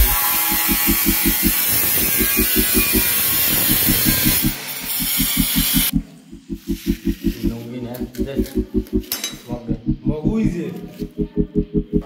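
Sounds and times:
electric tile cutter cutting: 0.0 - 6.0
fast low beat: 0.0 - 12.0.

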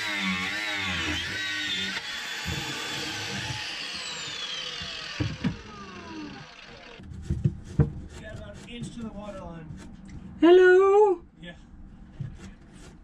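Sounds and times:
angle grinder cutting metal: 0.0 - 7.0.

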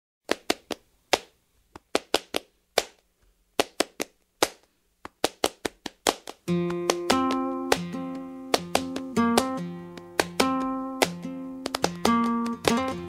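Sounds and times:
hand claps in syncopated rhythm: 0.3 - 3.0, 3.6 - 13.0
plucked string chords: 6.5 - 13.0.

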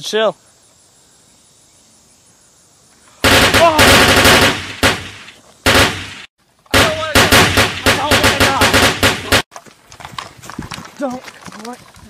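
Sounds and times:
automatic gunfire: 3.2 - 9.5.

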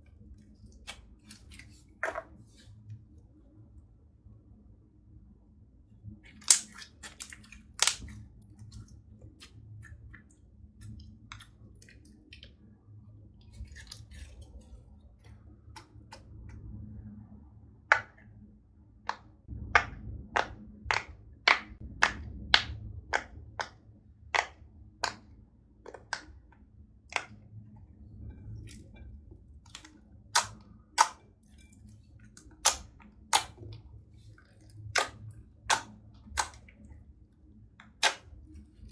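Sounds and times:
slime popping and crackling: 6.3 - 10.1, 29.6 - 36.9, 37.8 - 38.5.

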